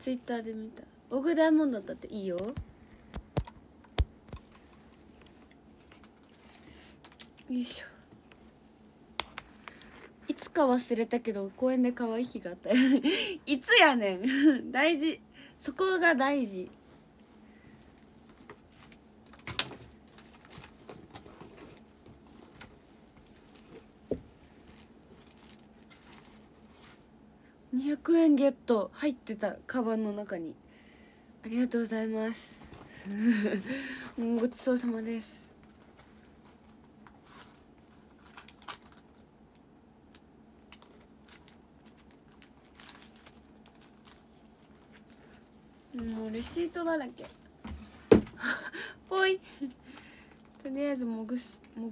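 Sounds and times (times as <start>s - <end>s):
rustling in a bag: 20.0s - 27.2s, 40.9s - 47.4s.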